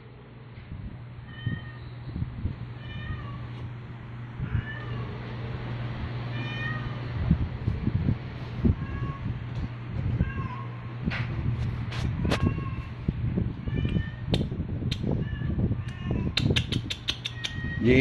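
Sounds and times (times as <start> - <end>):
steady low hum: 0.0 - 18.0
cat meowing: 1.2 - 1.9, 2.8 - 3.6, 4.4 - 5.2, 6.3 - 7.0, 8.7 - 9.4, 10.1 - 10.8, 12.2 - 13.0, 13.6 - 14.3, 15.2 - 16.4, 17.3 - 17.9.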